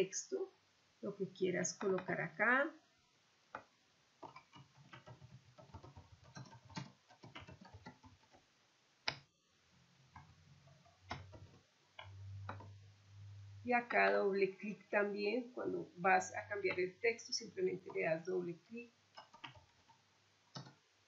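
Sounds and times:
keyboard typing: 3.6s - 8.4s, 10.1s - 12.8s, 16.2s - 18.3s, 19.1s - 20.8s
low hum: 12.0s - 14.5s.

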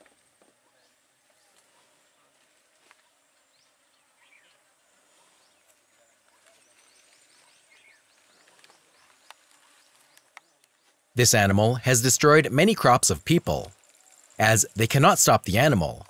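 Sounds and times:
bird chirps: 6.3s - 10.6s.

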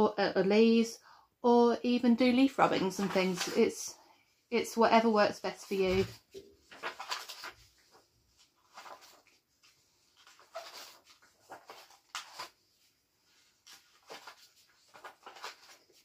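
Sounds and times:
paper pages turning: 2.8s - 3.8s, 5.6s - 16.0s.

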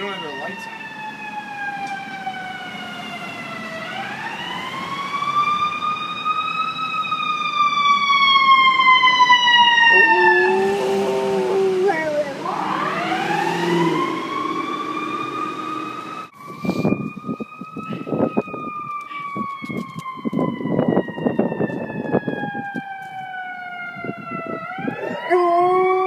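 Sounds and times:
ambulance siren wailing: 0.0s - 26.0s
dog howling: 9.8s - 15.4s, 24.8s - 26.0s.

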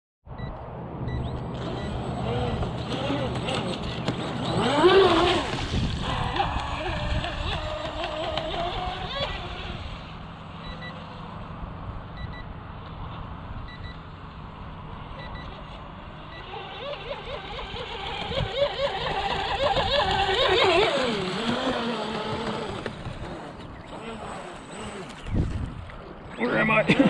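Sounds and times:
faint short beeps: 0.3s - 2.0s, 10.6s - 11.0s, 12.2s - 12.5s, 15.2s - 15.6s
rc speedboat motor whining: 1.6s - 11.4s, 14.8s - 26.8s.

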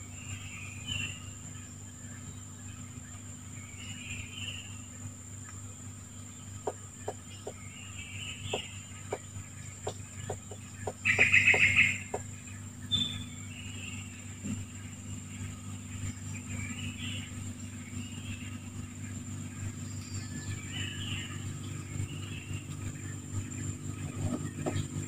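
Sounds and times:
birds calling: 0.0s - 25.0s
high insect drone: 0.0s - 25.0s
rapid chattering bird call: 6.4s - 25.0s.

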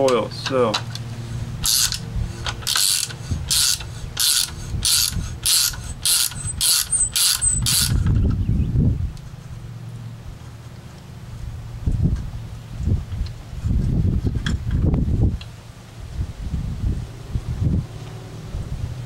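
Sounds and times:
ratcheting hand driver clicking: 0.0s - 8.2s
low rumble: 7.7s - 10.5s, 11.2s - 19.0s.

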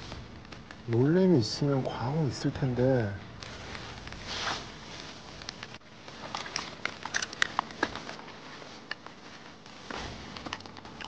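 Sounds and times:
light rain pattering: 0.0s - 4.3s.

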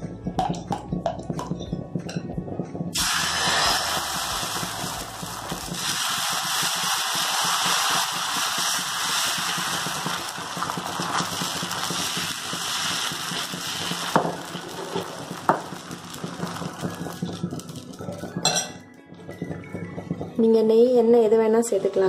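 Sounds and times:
batter sizzling on hot pan: 2.9s - 18.7s.

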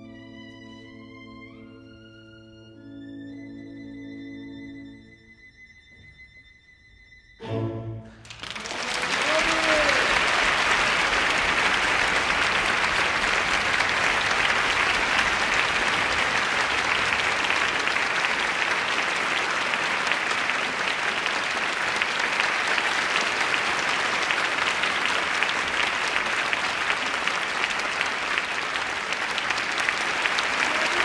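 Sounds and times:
audience applauding: 8.1s - 31.0s.

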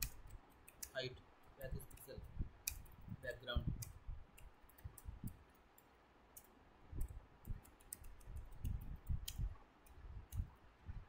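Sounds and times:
keyboard typing clicks: 3.8s - 9.4s.

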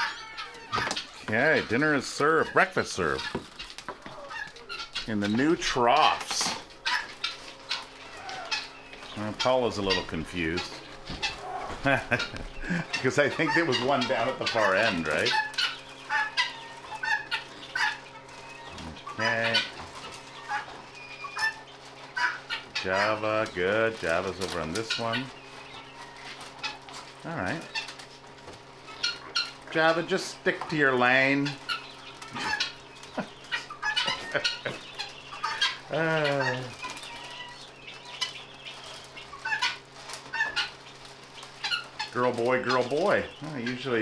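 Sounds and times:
wavering animal call: 0.0s - 1.1s, 6.8s - 8.9s
chickens clucking: 0.0s - 44.0s
steady low hum: 0.0s - 44.0s
clicks and knocks of feeding: 0.4s - 44.0s.

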